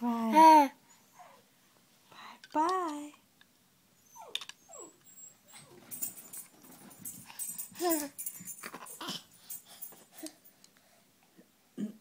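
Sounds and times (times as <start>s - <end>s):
handling clicks and knocks: 5.8s - 10.1s.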